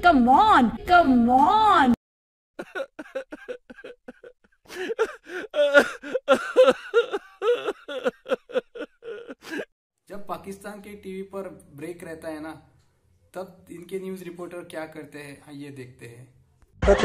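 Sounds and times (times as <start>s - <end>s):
man sobbing loudly: 2.6s - 9.7s.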